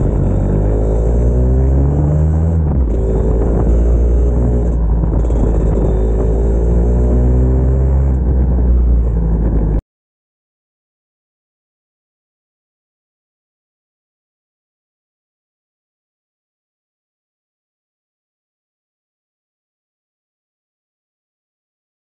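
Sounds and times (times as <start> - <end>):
motorcycle engine accelerating: 0.0 - 9.8
wind rushing over microphone: 1.7 - 9.8.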